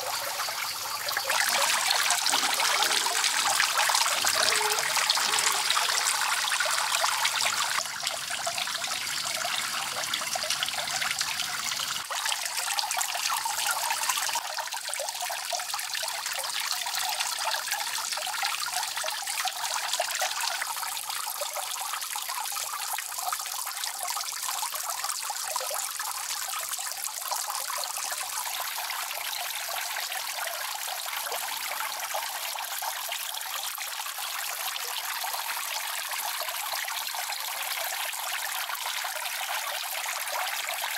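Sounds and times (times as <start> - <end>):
water trickling into pond: 0.0 - 40.9.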